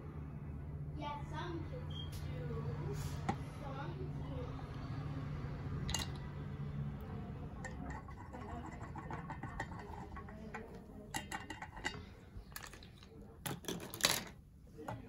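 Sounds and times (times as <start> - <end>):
oil pouring: 5.8 - 6.5
utensils tapping steel bowl: 7.5 - 12.9.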